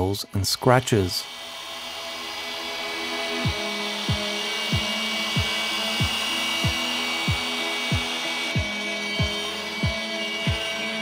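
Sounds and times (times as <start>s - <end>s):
polisher whirring: 0.0s - 11.0s
music with kick-drum beat: 3.4s - 11.0s.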